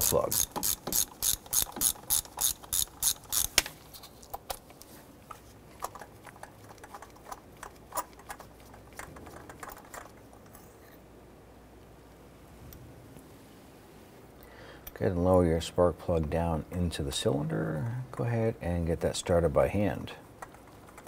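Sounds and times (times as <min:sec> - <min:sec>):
hand ratchet clicking: 0:00.0 - 0:03.6.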